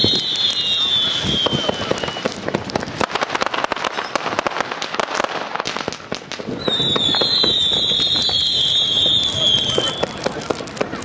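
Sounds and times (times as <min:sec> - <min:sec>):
high firework whistle: 0:00.0 - 0:02.6, 0:06.4 - 0:10.4
fireworks crackling pops: 0:00.0 - 0:11.0.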